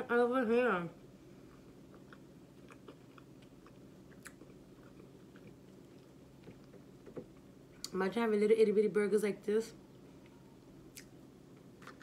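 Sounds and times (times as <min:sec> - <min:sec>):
chewing food: 0:01.3 - 0:07.9, 0:10.0 - 0:12.0.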